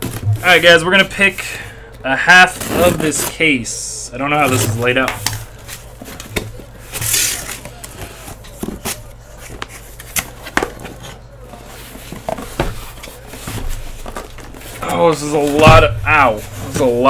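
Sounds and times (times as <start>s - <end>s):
cardboard scraping and rustling: 2.4s - 3.7s, 4.3s - 17.0s
tearing rustle: 5.5s - 12.2s.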